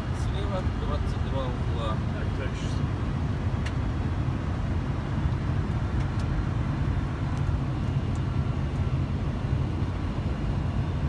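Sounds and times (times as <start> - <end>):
aircraft cockpit low rumble: 0.0 - 11.0.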